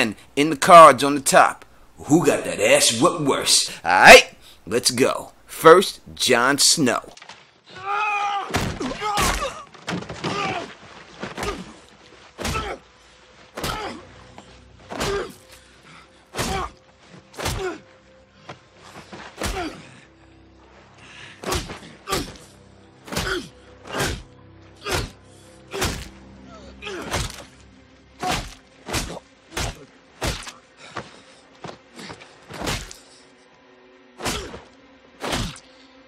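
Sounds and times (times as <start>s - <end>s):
low steady musical tone: 0.0s - 7.2s, 11.8s - 36.0s
punches landing with heavy thuds: 8.5s - 11.8s, 12.4s - 12.8s, 13.6s - 14.0s, 14.9s - 15.4s, 16.3s - 16.7s, 17.3s - 17.8s, 19.2s - 19.9s, 21.4s - 22.4s, 23.1s - 24.2s, 24.8s - 26.2s, 27.0s - 27.5s, 28.2s - 33.0s, 34.2s - 35.6s.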